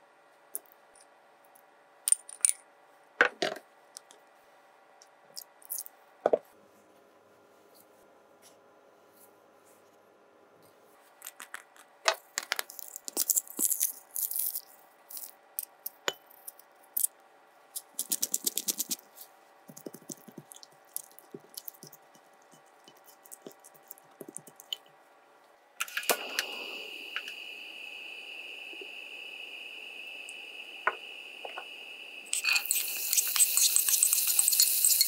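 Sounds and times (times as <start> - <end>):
pepper grinder clicking: 17.8 - 19.0, 32.3 - 35.0
gas burner hissing: 25.8 - 35.0
gas stove igniting: 25.8 - 35.0
metal spoon clinking on glass: 32.3 - 35.0.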